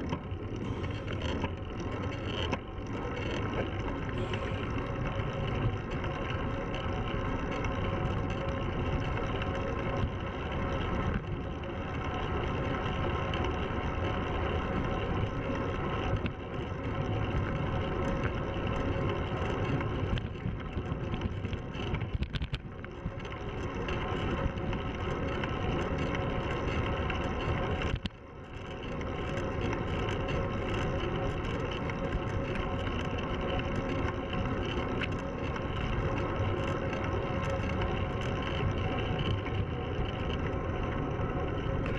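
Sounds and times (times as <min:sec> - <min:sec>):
bike tyre roar on asphalt: 0:00.0 - 0:41.9
constant hum: 0:00.0 - 0:41.9.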